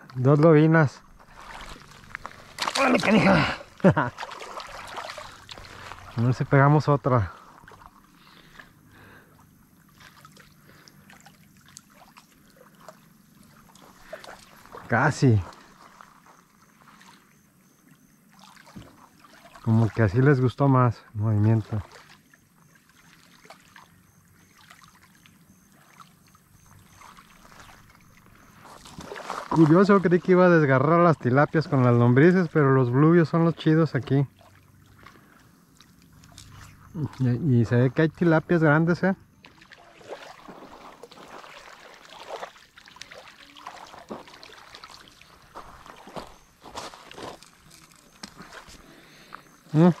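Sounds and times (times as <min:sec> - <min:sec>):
water lapping at a pebbly shore: 0:01.0 - 0:06.6, 0:07.2 - 0:20.2, 0:21.4 - 0:30.5, 0:33.5 - 0:37.3, 0:39.3 - 0:50.0
faint high chirp: 0:23.8 - 0:28.8, 0:46.0 - 0:50.0.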